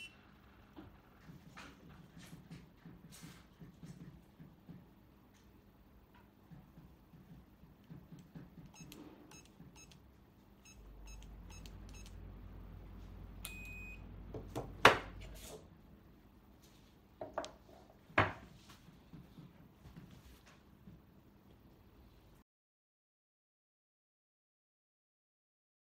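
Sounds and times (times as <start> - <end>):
keypad beeps: 8.7 - 10.0, 10.6 - 12.2, 13.4 - 14.0.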